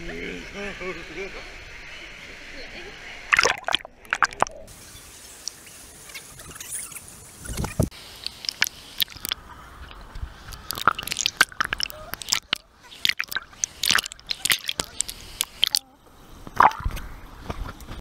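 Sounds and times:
water splashing and gurgling: 0:03.3 - 0:04.7, 0:07.4 - 0:17.2.

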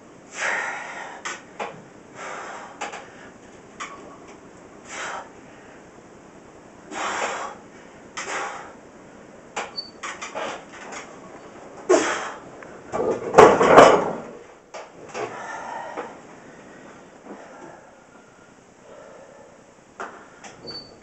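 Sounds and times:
short forceful breaths: 0:02.1 - 0:03.5, 0:04.8 - 0:05.9, 0:06.9 - 0:08.8, 0:11.9 - 0:12.5.

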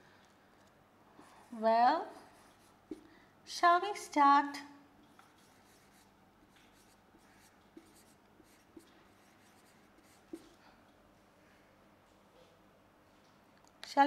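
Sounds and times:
marker pen scratching on whiteboard: 0:02.2 - 0:03.1, 0:05.2 - 0:10.6.

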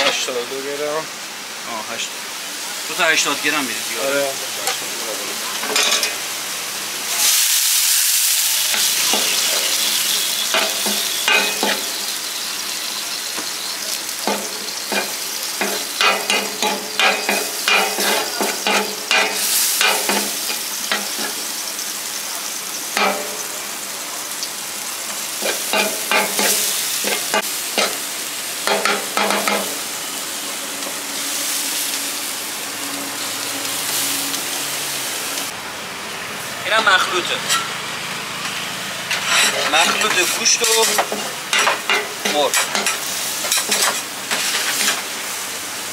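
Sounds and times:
meat sizzling in a pan: 0:00.0 - 0:35.6, 0:37.2 - 0:45.9
metal utensil scraping a pan: 0:05.6 - 0:06.2, 0:08.7 - 0:12.0, 0:13.3 - 0:21.4, 0:37.4 - 0:37.8, 0:38.5 - 0:45.1.

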